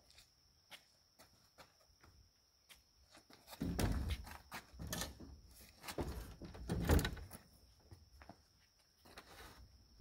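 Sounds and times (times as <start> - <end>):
wooden beam thump: 3.6 - 5.3.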